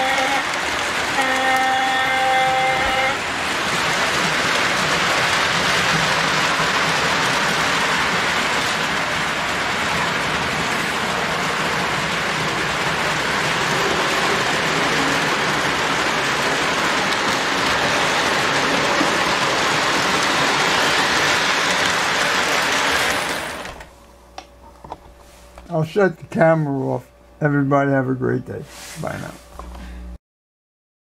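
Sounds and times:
toy train wheels rolling on rails: 0.0s - 23.9s.

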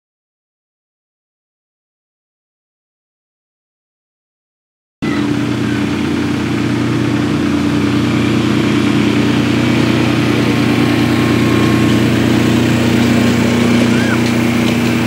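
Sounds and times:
small locomotive engine running: 5.0s - 15.0s.

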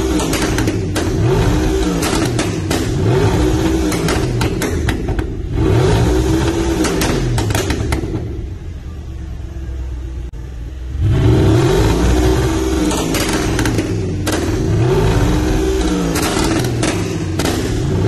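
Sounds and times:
exhaust pops and crackles: 0.0s - 5.4s, 6.5s - 8.4s, 12.8s - 18.0s
sports car engine revving: 0.0s - 8.5s, 10.9s - 18.0s.

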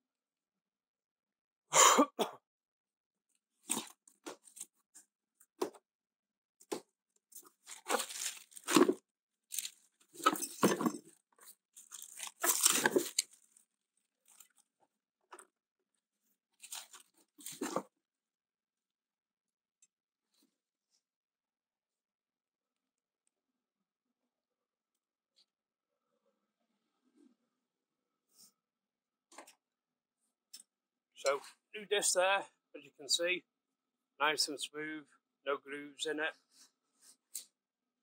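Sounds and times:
packaging crinkling: 7.7s - 11.0s, 11.8s - 13.6s.

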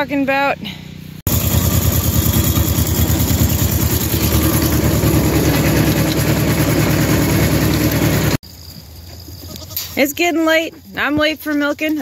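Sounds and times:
tractor engine running: 1.3s - 8.4s.

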